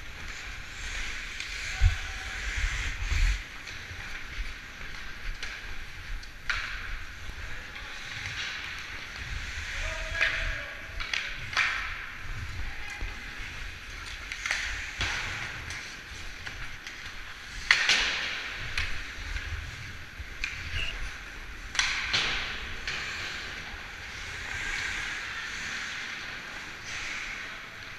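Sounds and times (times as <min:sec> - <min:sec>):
wind rumble on microphone: 0:00.8 - 0:04.6
skate blades scraping ice: 0:11.2 - 0:27.9.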